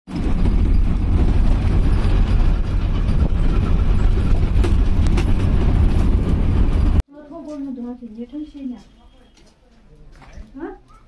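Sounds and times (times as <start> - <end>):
vehicle rumbling along road: 0.1 - 7.0.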